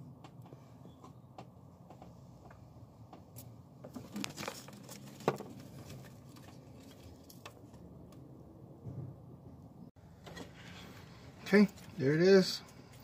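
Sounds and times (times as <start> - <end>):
hands rustling among wiring: 1.9 - 8.3.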